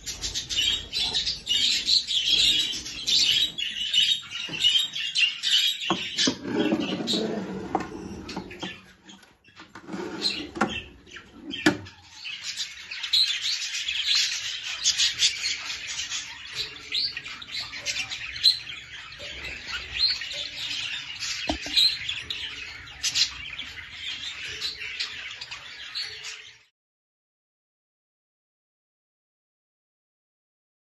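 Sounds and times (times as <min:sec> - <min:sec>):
budgerigars chirping and warbling: 0:00.0 - 0:26.7.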